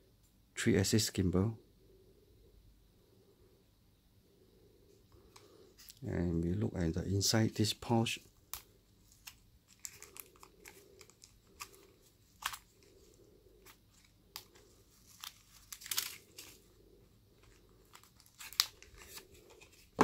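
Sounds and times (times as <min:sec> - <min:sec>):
plastic packaging rustling: 0:08.4 - 0:16.8, 0:17.4 - 0:20.0.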